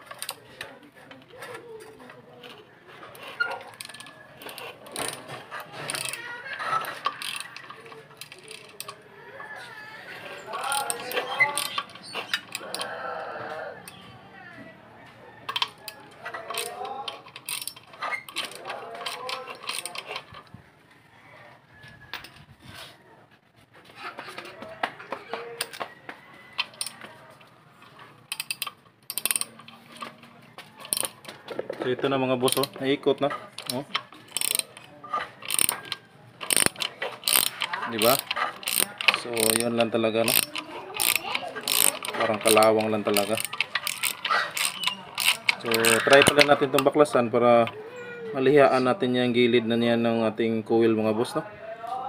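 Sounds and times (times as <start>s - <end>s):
ratchet wrench clicking: 3.2s - 9.0s, 10.5s - 12.9s, 16.4s - 20.4s, 26.6s - 27.1s, 27.8s - 30.1s, 30.8s - 31.2s, 32.4s - 47.2s.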